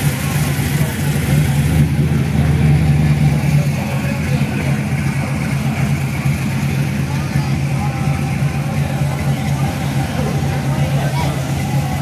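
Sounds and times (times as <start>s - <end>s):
car engine burbling: 0.0s - 12.0s.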